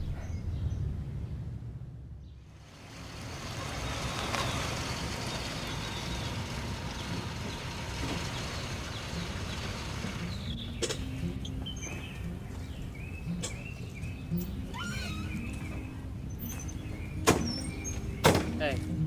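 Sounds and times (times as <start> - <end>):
truck engine running: 2.4 - 14.6.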